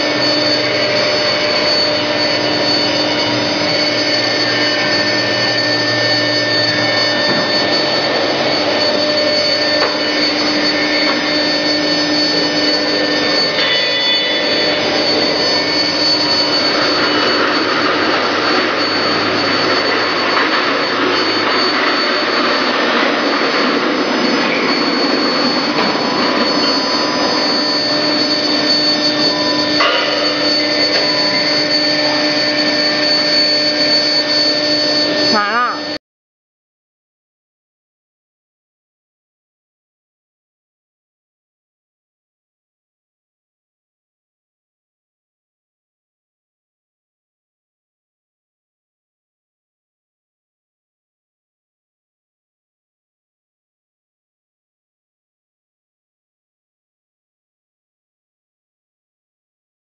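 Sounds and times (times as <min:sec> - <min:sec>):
workshop machinery whirring: 0:00.0 - 0:36.0.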